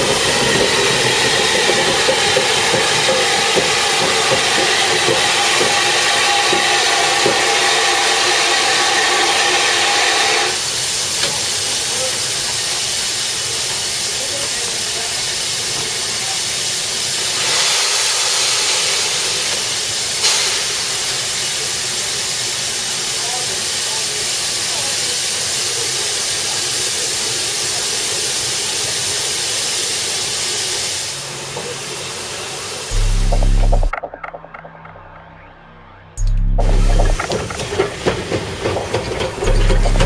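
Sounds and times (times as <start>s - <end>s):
sharp steam burst: 0.0s - 33.9s
steam locomotive hissing: 0.0s - 33.9s, 36.6s - 40.0s
steady pitched note: 32.9s - 33.9s, 35.3s - 37.2s, 39.4s - 40.0s.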